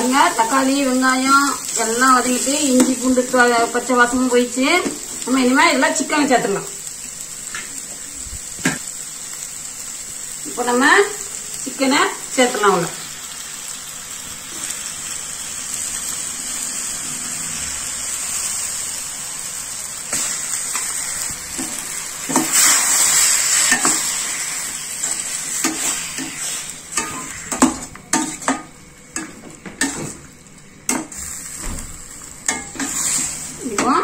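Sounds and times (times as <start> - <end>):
chicken sizzling in hot oil: 0.0 - 34.0
metal spatula scraping a pot: 22.4 - 28.6, 32.5 - 33.5.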